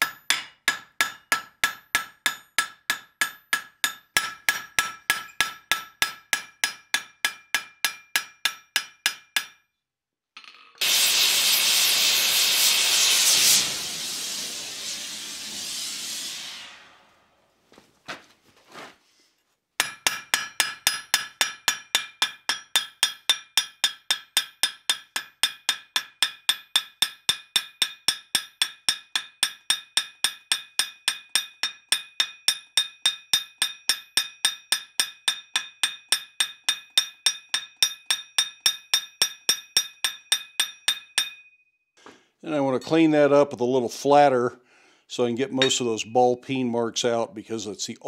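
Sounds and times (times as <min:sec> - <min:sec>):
hammer striking hot metal: 0:00.0 - 0:09.6, 0:19.8 - 0:41.5, 0:45.6 - 0:45.9.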